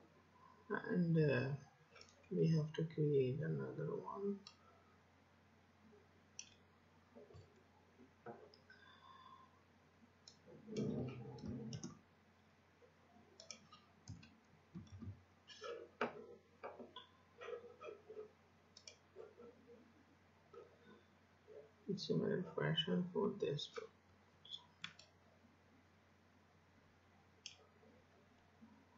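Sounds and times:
low muffled noise: 0.0 - 28.9
computer mouse clicks: 6.4 - 6.6, 10.2 - 12.0, 13.4 - 16.2, 18.7 - 19.0, 24.6 - 25.2, 27.4 - 27.6.

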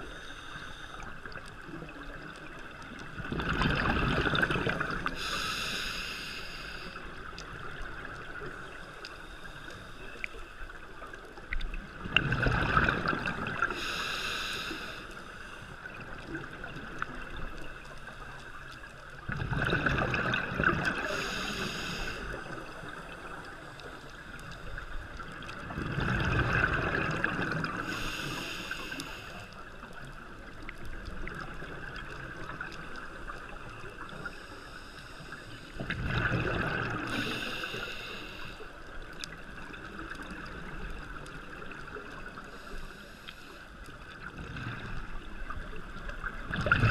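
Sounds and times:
low underwater wash: 0.0 - 46.9
diver breathing through regulator: 4.8 - 7.1, 13.6 - 15.7, 20.8 - 22.7, 27.6 - 29.6, 36.8 - 38.7.

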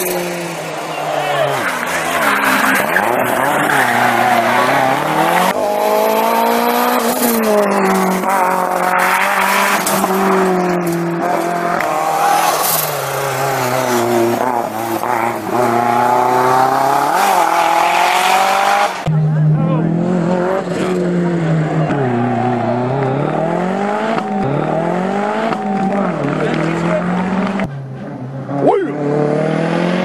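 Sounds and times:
rally car engine revving: 0.0 - 30.0.

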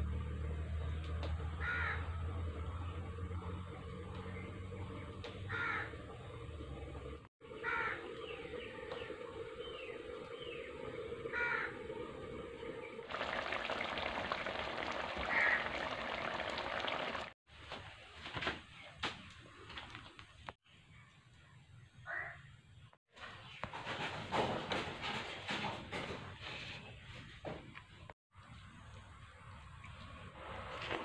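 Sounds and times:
crows cawing: 1.6 - 2.1, 5.5 - 5.9, 7.6 - 8.0, 11.3 - 11.8, 15.2 - 16.0, 22.1 - 22.4.

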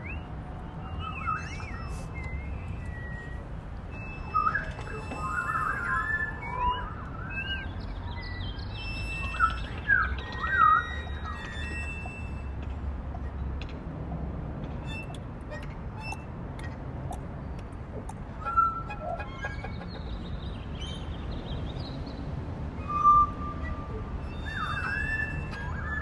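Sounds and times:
parrot whistling and chirping: 22.8 - 26.0.

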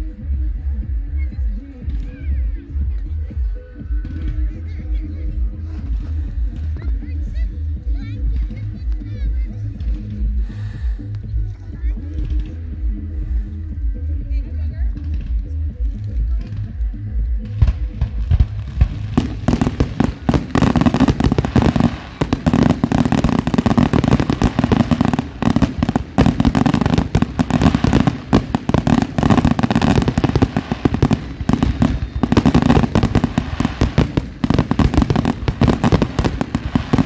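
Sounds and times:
fireworks bangs and crackling: 17.3 - 37.0.

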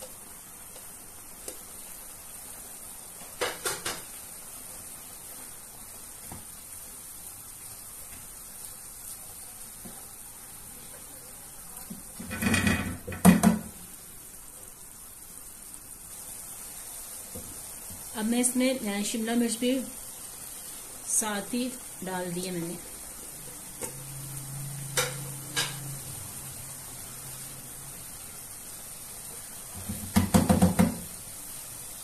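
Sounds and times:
food sizzling in frying pan: 0.0 - 32.0
wooden spoon knocking pan: 11.9 - 13.8, 29.8 - 31.1.

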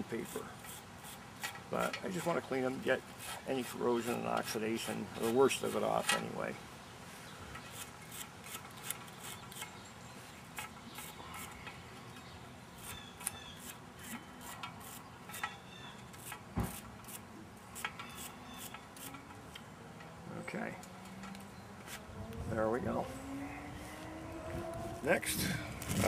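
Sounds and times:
wire brush scrubbing copper wires: 0.0 - 6.6, 7.7 - 9.7, 12.8 - 15.5, 16.1 - 19.6.

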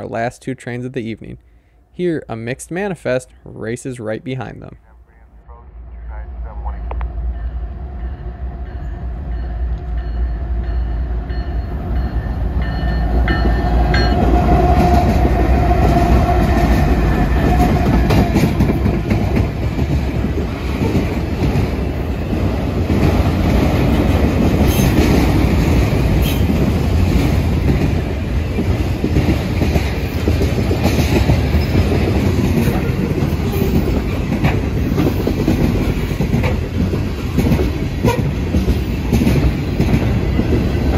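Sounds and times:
freight train rumbling past: 5.1 - 40.9
wheels clacking over rail joints: 12.6 - 40.9.

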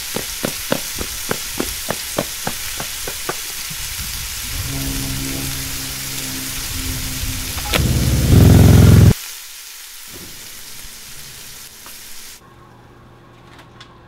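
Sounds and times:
running footsteps on pavement: 0.0 - 4.0
steady hiss: 0.0 - 12.4
motorcycle engine idling: 7.7 - 9.1.

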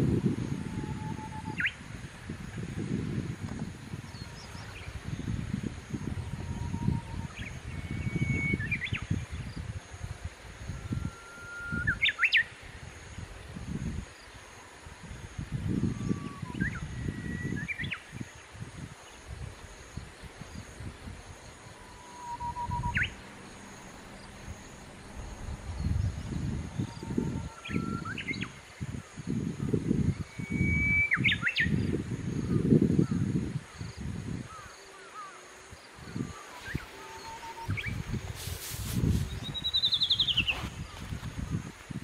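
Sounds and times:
wind rumbling on microphone: 0.0 - 42.0
songbird whistling song: 0.7 - 1.8, 6.2 - 9.4, 10.7 - 12.5, 15.8 - 18.3, 21.8 - 23.2, 26.3 - 28.6, 30.1 - 31.9, 36.2 - 41.2.

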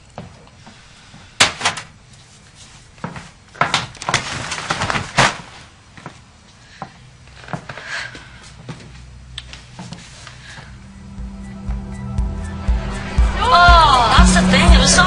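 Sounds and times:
rustling: 1.8 - 6.8.

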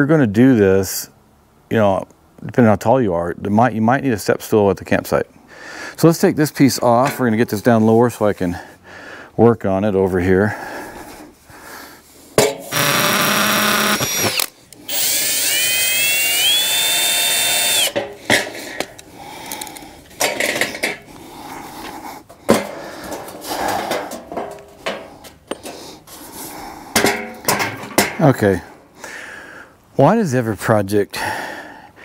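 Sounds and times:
cordless drill whining: 12.7 - 18.0
metal pipe clanking: 22.4 - 25.8.

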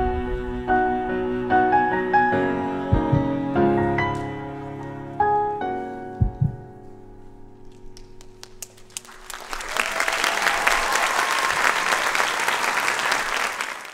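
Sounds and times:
audience applause: 8.3 - 13.9.

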